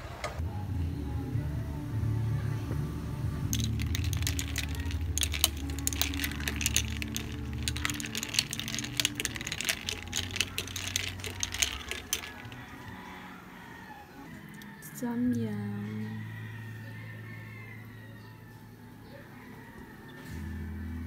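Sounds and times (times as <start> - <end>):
ice cubes clinking in glass: 3.5 - 13.0.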